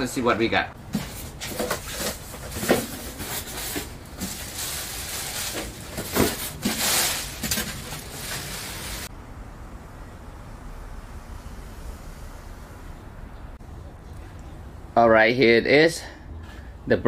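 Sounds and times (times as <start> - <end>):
cardboard box rustling and scraping: 0.9 - 9.1.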